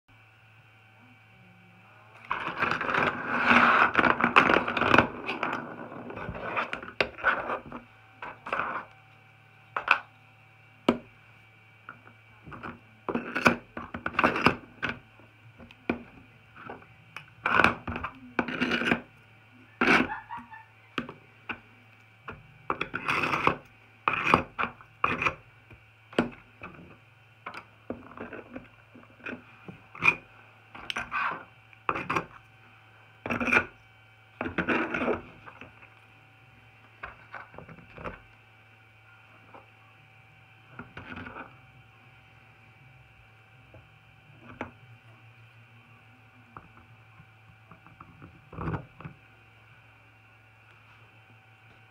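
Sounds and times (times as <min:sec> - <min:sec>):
faint steady hum: 0:00.1 - 0:51.9.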